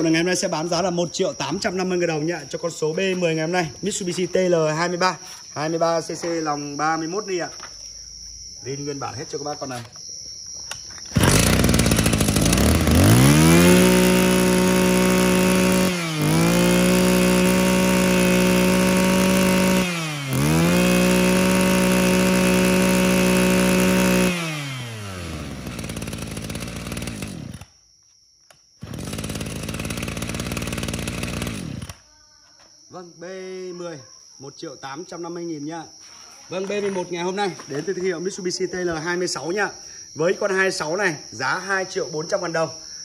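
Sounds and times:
brush-cutter engine revving: 11.1 - 27.8, 28.8 - 32.1.

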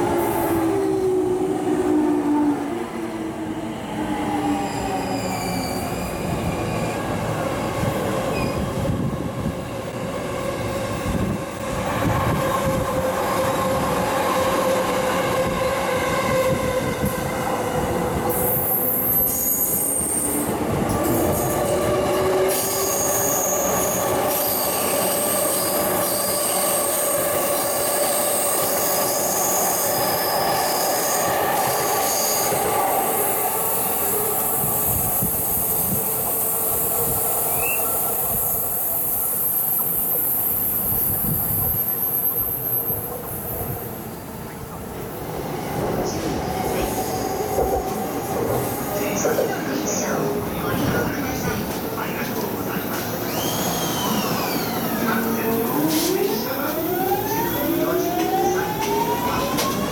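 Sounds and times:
train wheels on rails: 4.4 - 59.9
high-pitched wheel squeal: 4.6 - 7.0, 53.2 - 55.0.

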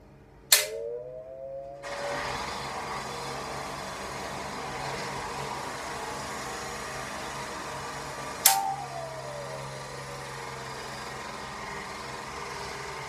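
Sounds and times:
singing saw struck and ringing: 0.5 - 2.2, 8.4 - 10.8
hydraulic jackhammer: 1.8 - 13.0.

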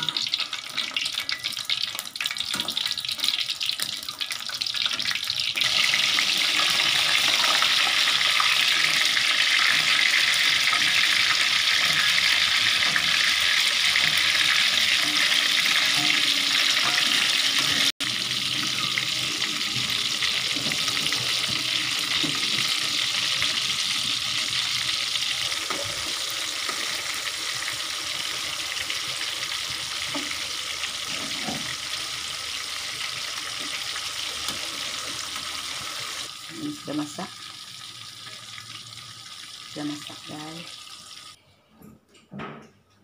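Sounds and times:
hot oil sizzling: 0.0 - 41.4
metal tongs tapping: 12.8 - 17.8.

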